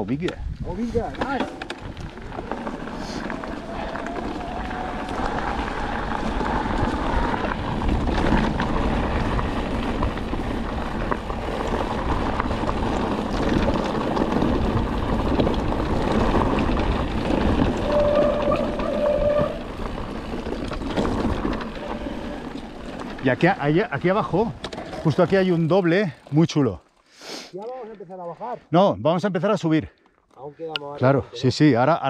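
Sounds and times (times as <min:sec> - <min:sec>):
bike tyres rolling and rattling: 0:00.0 - 0:27.1
wind rumble on microphone: 0:00.3 - 0:22.0.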